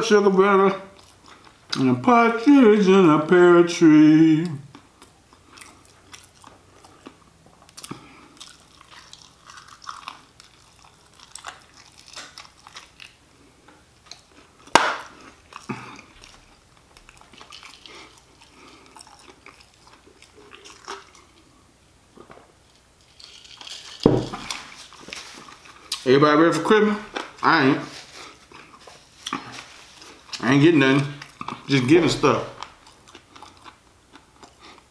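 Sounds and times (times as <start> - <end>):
chewing crispy fried chicken: 0.6 - 2.0, 3.8 - 26.1, 26.7 - 34.9
sharp crunching crack: 14.0 - 16.4.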